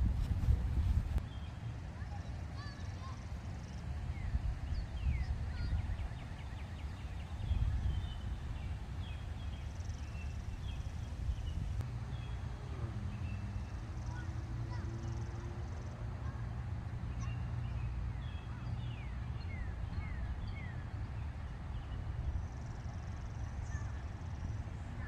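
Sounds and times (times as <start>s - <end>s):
wind rumbling on microphone: 0.0s - 1.6s, 3.8s - 14.2s.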